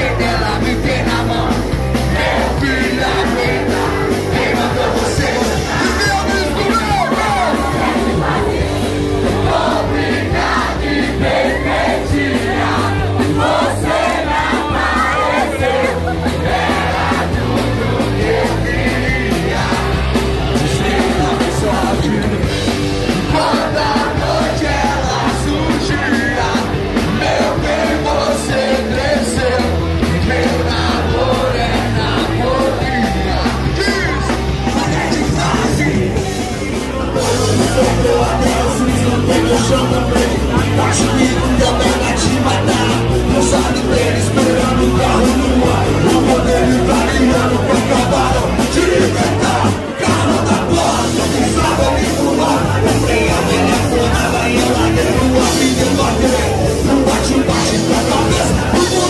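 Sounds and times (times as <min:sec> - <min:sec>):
crowd shouting along: 0:00.0 - 0:59.0
live rock band playing: 0:00.0 - 0:59.0
person singing into microphone: 0:00.0 - 0:59.0.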